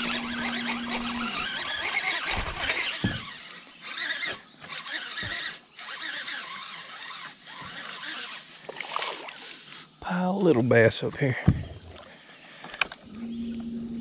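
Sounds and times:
fishing reel whirring: 0.0s - 9.8s.

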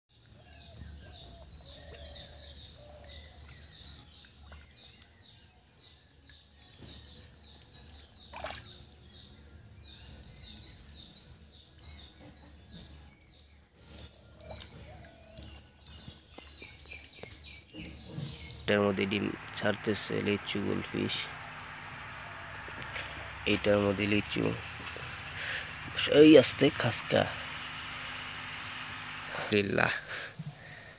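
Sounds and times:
small birds chirping: 0.1s - 30.9s
faint low hum: 17.8s - 30.9s.

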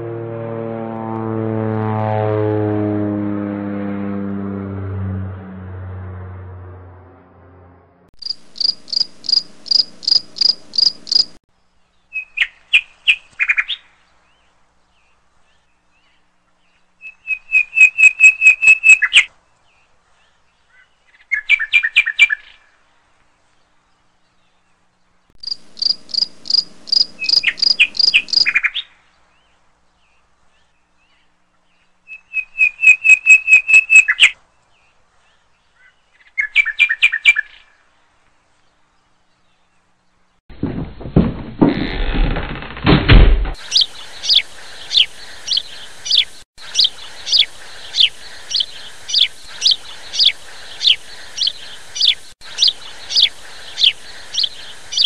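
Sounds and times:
high chirping trills: 8.2s - 11.4s, 25.4s - 28.7s, 43.6s - 55.0s.

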